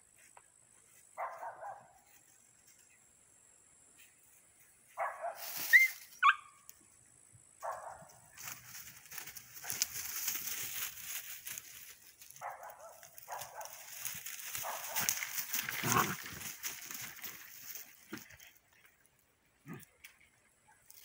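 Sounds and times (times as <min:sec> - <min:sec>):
rustle of dry leaves: 0:05.2 - 0:06.3, 0:08.2 - 0:19.2
puppies making play noises: 0:13.6 - 0:19.0.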